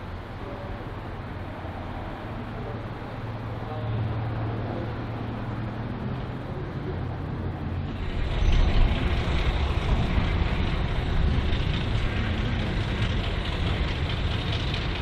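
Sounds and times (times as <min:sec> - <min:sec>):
diesel locomotive engine humming: 0:00.0 - 0:15.0.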